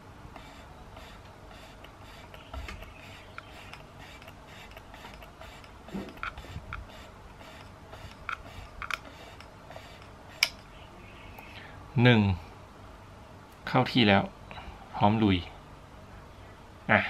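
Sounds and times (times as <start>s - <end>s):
camera winding knob ratchet clicks: 0.4s - 10.6s.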